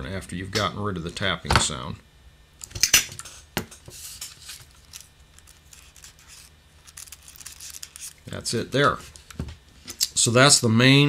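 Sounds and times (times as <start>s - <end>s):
paper rustling: 3.9s - 8.3s.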